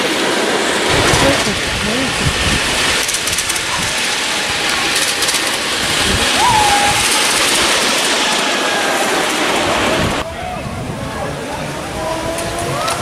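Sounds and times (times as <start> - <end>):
train wheels rattling on rails: 0.0 - 10.2.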